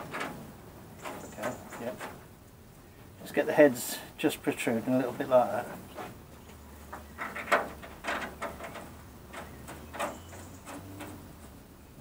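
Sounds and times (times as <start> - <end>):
metal studs clicking and scraping: 0.0 - 2.3, 6.9 - 11.6.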